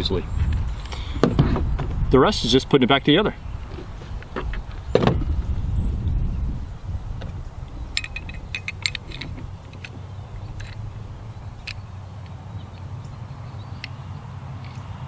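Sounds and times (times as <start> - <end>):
low rumble: 5.1 - 13.3
metallic clicks and clinks: 7.9 - 10.8.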